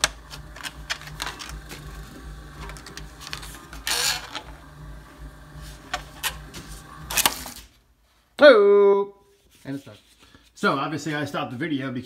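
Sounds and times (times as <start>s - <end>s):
plastic crunching: 0.0s - 4.7s
motor humming: 0.0s - 7.8s
shredder cutters clicking: 0.0s - 7.8s.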